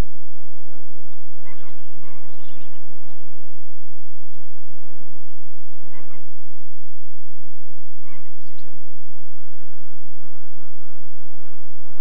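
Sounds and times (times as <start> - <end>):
flamingos honking: 5.8 - 6.3.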